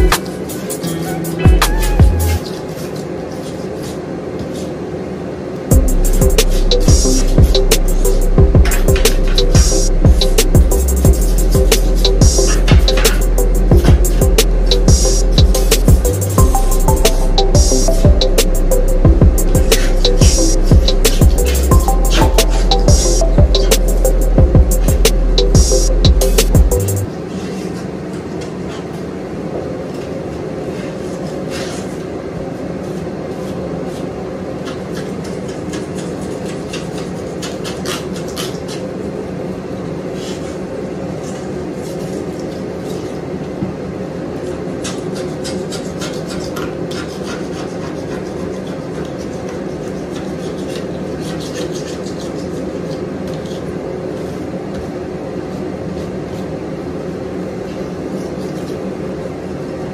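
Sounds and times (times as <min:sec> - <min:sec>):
steady machine hum: 0:00.0 - 0:47.2
hand scraper scraping coating: 0:10.9 - 0:16.4, 0:19.5 - 0:20.2, 0:33.3 - 0:38.9, 0:44.8 - 0:54.3.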